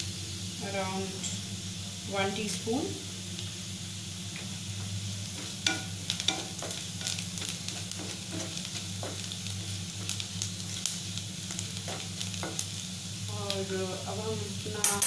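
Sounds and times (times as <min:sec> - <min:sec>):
low steady hum: 0:00.0 - 0:15.0
onions sizzling in oil: 0:00.0 - 0:15.0
spatula scraping a pan: 0:05.4 - 0:09.7.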